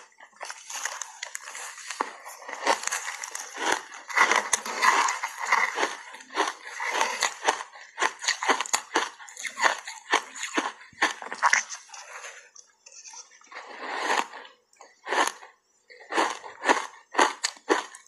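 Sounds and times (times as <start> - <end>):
ice bars crunching and cracking: 0.0 - 11.8.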